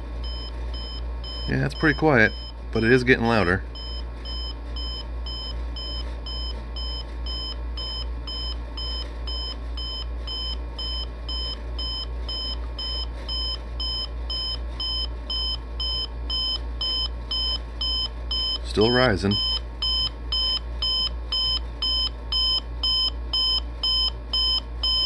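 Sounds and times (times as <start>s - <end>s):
alarm clock beeping: 0.2s - 2.5s, 3.8s - 25.0s.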